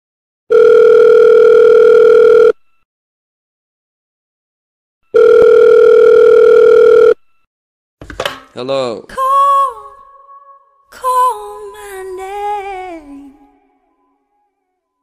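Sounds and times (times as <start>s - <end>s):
telephone ringback tone: 0.5s - 2.6s, 5.1s - 7.2s.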